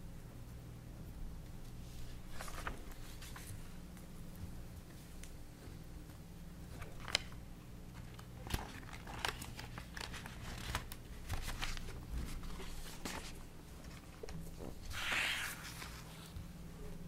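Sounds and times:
low steady hum: 0.0 - 17.0
paper rustling and shuffling: 1.6 - 3.8, 6.7 - 16.6.

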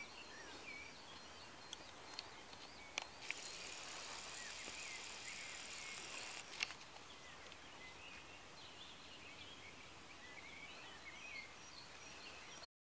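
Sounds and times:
rustling hiss: 0.0 - 9.2
songbirds chirping: 0.0 - 12.7.

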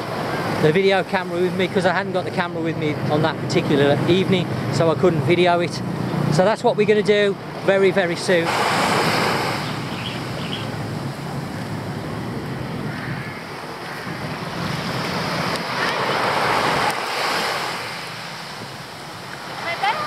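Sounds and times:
small waves washing onto sand: 7.2 - 20.0.

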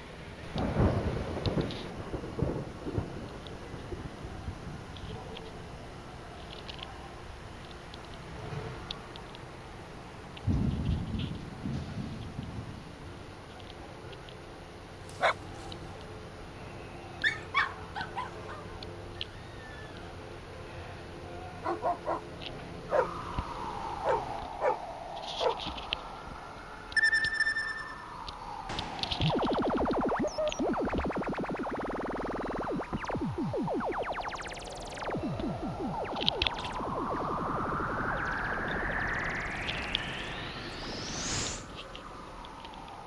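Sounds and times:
steady background noise: 0.0 - 43.0
gliding electronic tone: 22.7 - 43.0
fast pulsing sweep: 22.9 - 43.0.

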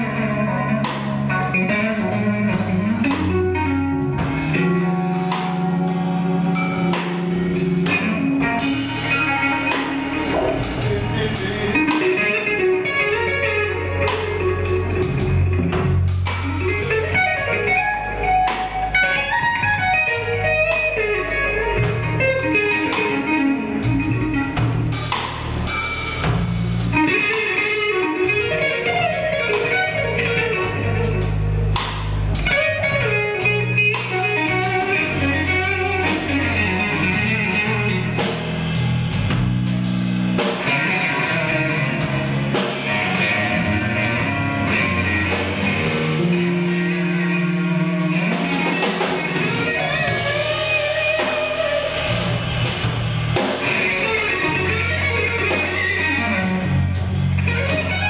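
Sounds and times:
electric guitar: 0.0 - 58.0
drum kit hits: 4.1 - 21.0, 23.8 - 27.6, 31.6 - 33.2, 33.8 - 46.6, 47.4 - 58.0.

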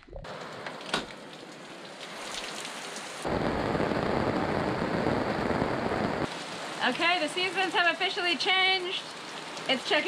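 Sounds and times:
heavy rain hissing: 2.0 - 10.0.

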